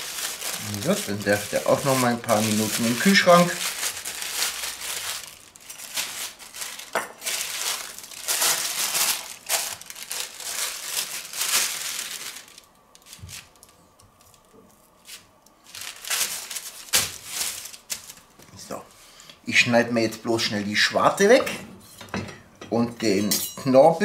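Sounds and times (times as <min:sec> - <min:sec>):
paper crinkling and rustling: 0:00.0 - 0:18.5.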